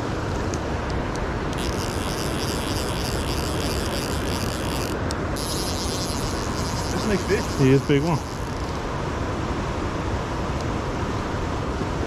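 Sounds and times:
fly reel drag ratcheting: 1.5s - 8.8s.

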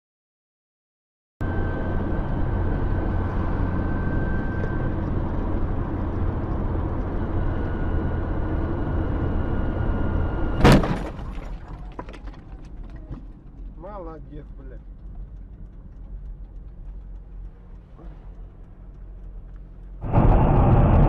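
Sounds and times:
car road and engine noise: 1.4s - 21.0s
collision bang: 10.6s - 11.7s.

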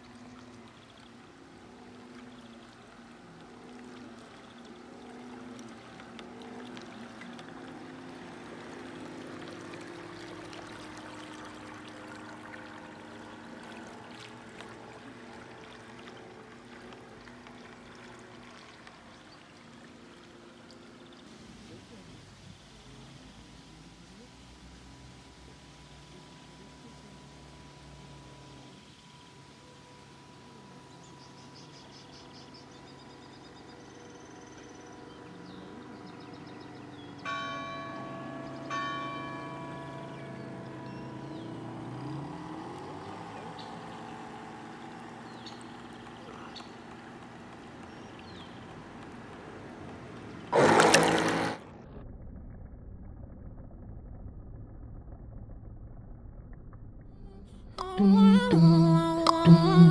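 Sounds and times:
birds chirping: 0.0s - 23.6s, 26.1s - 51.6s
water rushing and splashing: 0.0s - 51.7s
low steady hum: 0.0s - 59.9s
electric motor humming: 32.7s - 51.8s
bell ringing: 37.2s - 42.2s.

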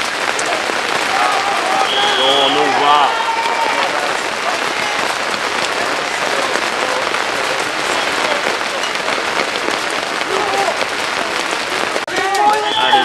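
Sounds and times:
faint voices: 0.0s - 13.0s
steady crackling noise: 0.0s - 13.0s.

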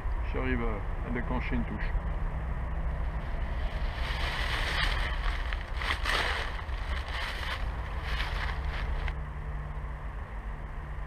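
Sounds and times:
wind rumble on microphone: 0.0s - 9.2s
rustling and handling noise: 3.1s - 9.2s.

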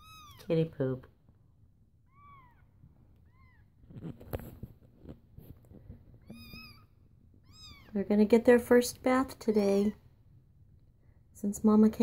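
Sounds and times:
rustling and knocking on blanket: 3.8s - 6.7s.

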